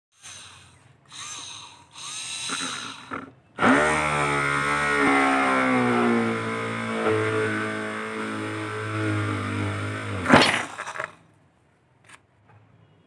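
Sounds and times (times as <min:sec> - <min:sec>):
drill motor hum boring board: 0:00.2 - 0:11.2
electric drill whirring: 0:01.1 - 0:11.1.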